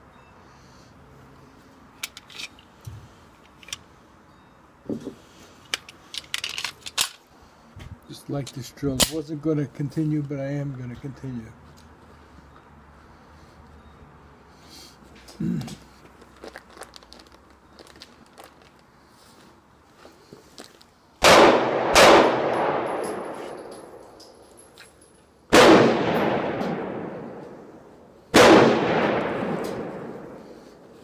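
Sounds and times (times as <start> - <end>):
echoing gunshots: 21.2 - 24.0, 25.5 - 30.9.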